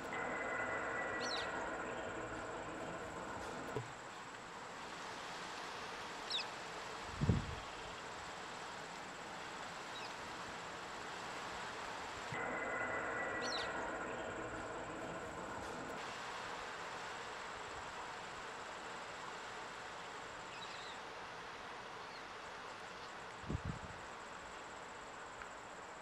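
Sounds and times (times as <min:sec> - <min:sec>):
bird chirps: 0:00.0 - 0:03.8, 0:12.4 - 0:15.9
low engine hum: 0:00.0 - 0:04.2
insects droning: 0:00.0 - 0:26.0.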